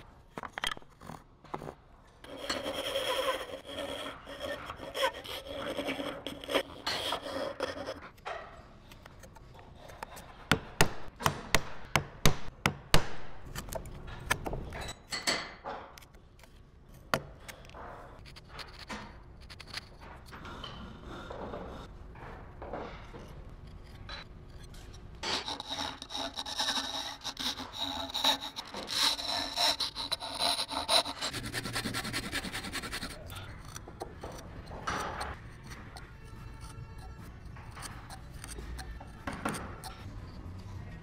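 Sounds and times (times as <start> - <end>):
hand saw sawing wood: 2.2 - 8.1, 25.2 - 33.4.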